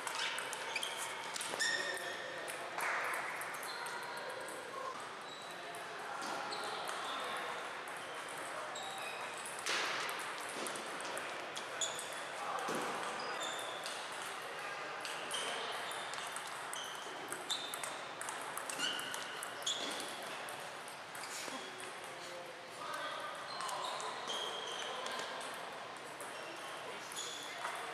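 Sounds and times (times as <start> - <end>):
table tennis balls ticking: 0.0 - 5.8, 6.8 - 12.2, 15.1 - 22.2.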